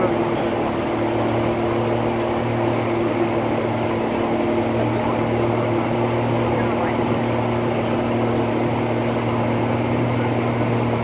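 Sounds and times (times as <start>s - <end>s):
motorboat engine running: 0.0s - 11.0s
rushing water: 0.0s - 11.0s.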